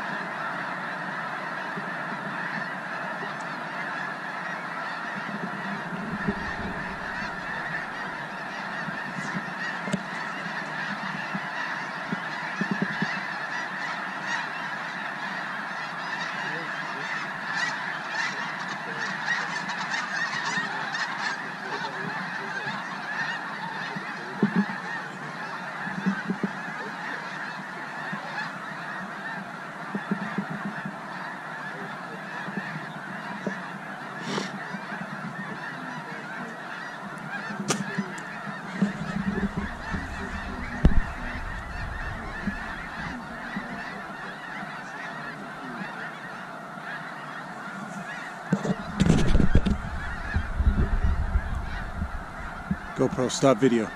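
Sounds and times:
geese honking: 0.0s - 53.9s
low thumps: 6.0s - 8.1s, 38.8s - 43.7s, 48.5s - 53.1s.

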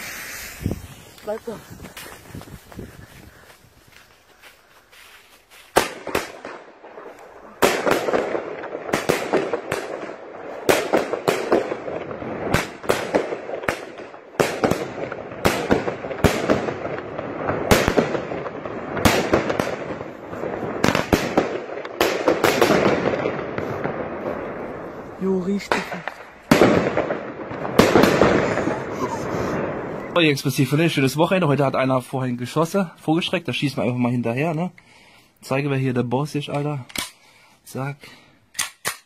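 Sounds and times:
continuous rushing hiss: 0.0s - 5.8s
firework bangs: 5.7s - 30.2s.

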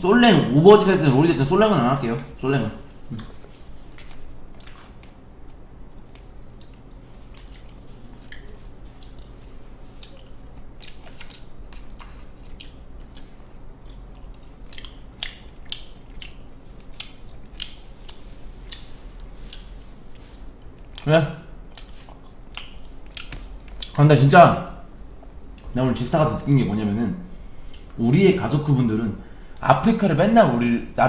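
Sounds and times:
person chewing with wet clicks: 3.1s - 24.0s, 27.6s - 28.0s.

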